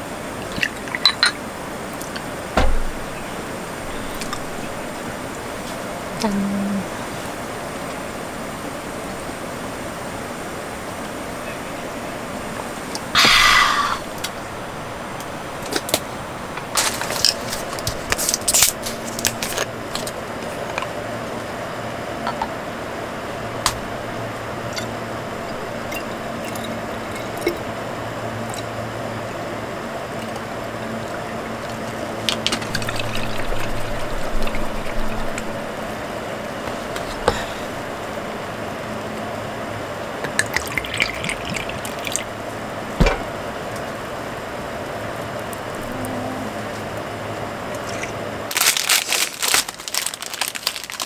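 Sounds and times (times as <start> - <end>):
steady low hum: 0.0 - 48.6
bottles and caps clinking: 0.4 - 1.4
liquid pouring into bottle: 31.0 - 35.6, 40.3 - 42.3, 47.8 - 48.2.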